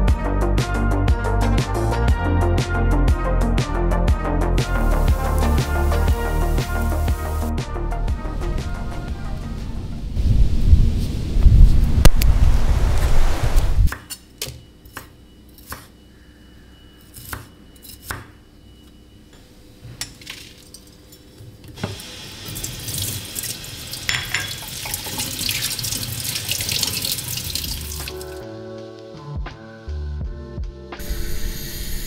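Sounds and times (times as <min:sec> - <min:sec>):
music: 0:00.0 - 0:10.4, 0:27.7 - 0:32.0
tap water splashing in colander: 0:21.8 - 0:28.4
dishes clinking: 0:24.1 - 0:24.8.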